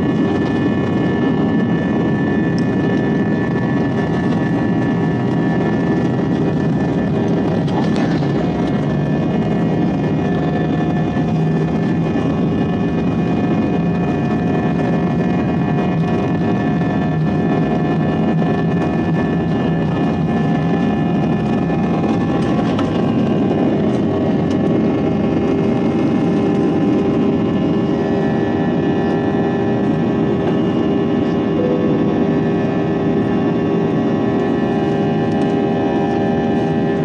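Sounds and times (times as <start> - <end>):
jet engine hum in cabin: 0.0 - 37.0
whining tones: 27.2 - 34.7.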